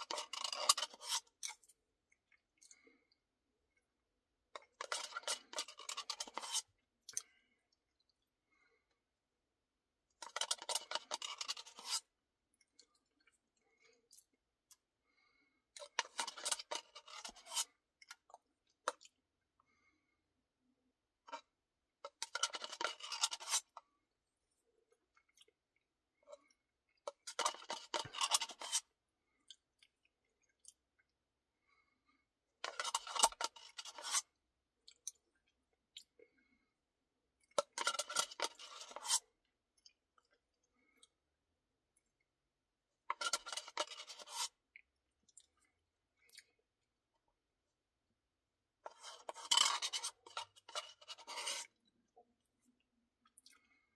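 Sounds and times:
plastic spoon scraping paper cup: 0.0 - 1.6, 4.8 - 6.7, 10.2 - 12.1, 15.8 - 17.8, 22.1 - 23.8, 27.1 - 28.9, 32.6 - 34.3, 37.6 - 39.3, 43.1 - 44.6, 48.8 - 51.8
chewing: 53.2 - 53.8.

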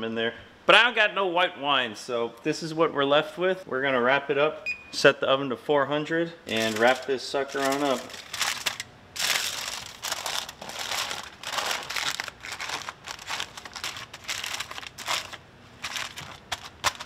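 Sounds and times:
aluminium foil crinkling: 6.5 - 17.0.

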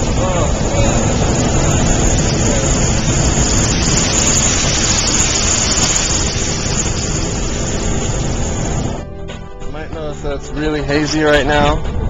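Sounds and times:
propane burner roaring: 0.0 - 9.0.

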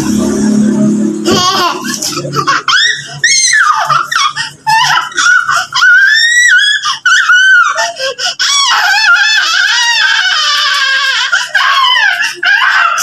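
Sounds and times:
toddler squealing and shrieking: 2.7 - 13.0.

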